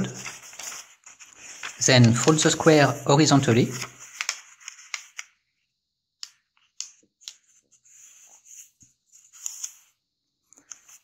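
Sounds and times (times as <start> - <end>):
paper crackles: 0.0 - 5.3
fingers brushing paper fold: 0.1 - 3.0.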